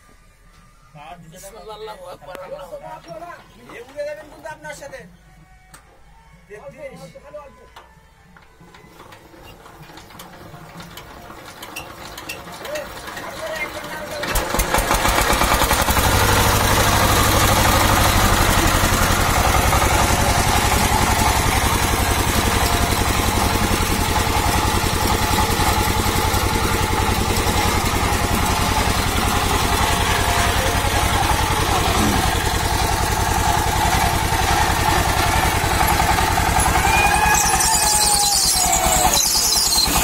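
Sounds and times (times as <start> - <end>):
diesel engine running steadily: 10.1 - 40.0.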